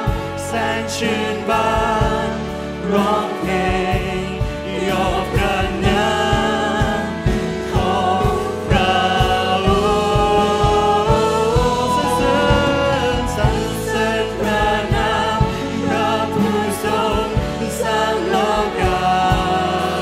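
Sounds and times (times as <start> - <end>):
band with steady drum beat: 0.0 - 20.0
man leading worship song: 0.0 - 20.0
voices singing along: 0.0 - 20.0.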